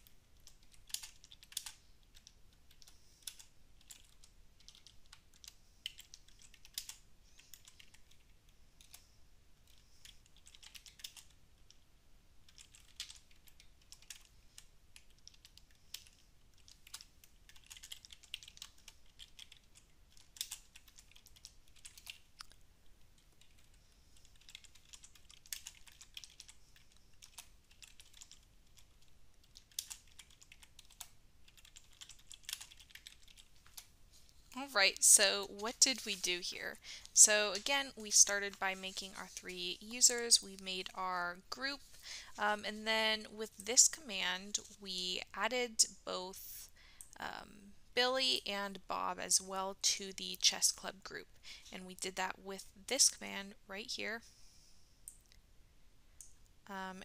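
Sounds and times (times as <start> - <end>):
typing on computer keyboard: 0.0 - 9.0, 9.6 - 11.8, 12.4 - 22.6, 23.2 - 33.9.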